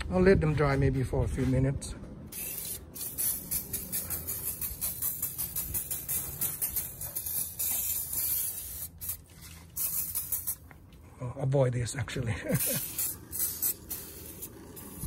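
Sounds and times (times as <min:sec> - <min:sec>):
spray hissing in spurts: 0:02.3 - 0:10.8, 0:12.4 - 0:15.0.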